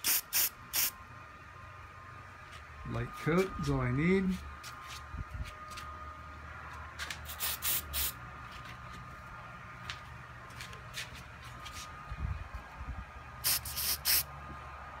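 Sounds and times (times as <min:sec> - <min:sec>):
spray paint can hissing: 0:00.0 - 0:01.0, 0:07.2 - 0:08.2, 0:13.4 - 0:14.3.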